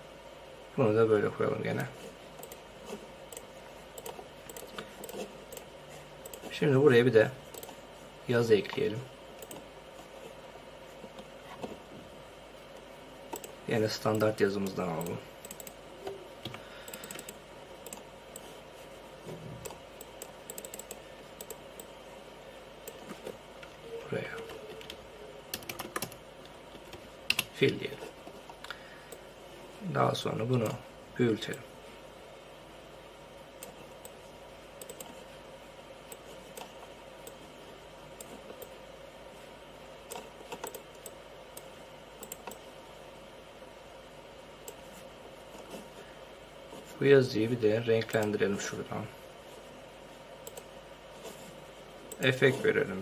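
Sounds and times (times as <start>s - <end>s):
faint steady hum: 0.0s - 53.0s
computer mouse and keys clicking: 1.8s - 7.8s, 8.6s - 10.4s, 12.7s - 18.6s, 19.2s - 22.0s, 22.8s - 29.2s, 30.4s - 30.8s, 33.6s - 35.4s, 36.0s - 37.5s, 38.1s - 38.8s, 40.0s - 42.8s, 44.6s - 46.0s, 48.0s - 48.4s, 50.4s - 52.9s
computer keyboard clicks: 15.0s - 15.8s, 16.4s - 18.0s, 20.0s - 21.9s, 24.8s - 26.2s, 26.9s - 27.5s, 34.8s - 35.2s, 40.1s - 42.6s.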